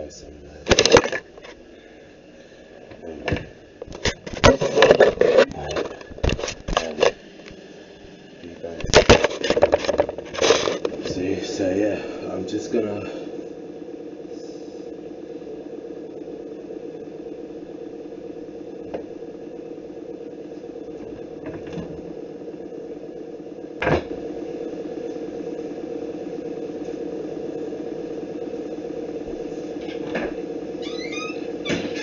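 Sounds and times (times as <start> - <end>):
steady mechanical hum: 0.0 - 32.0.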